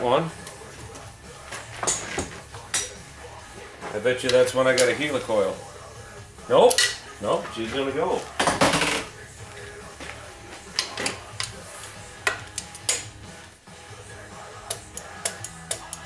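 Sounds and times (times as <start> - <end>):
torque wrench clicking: 14.6 - 16.0.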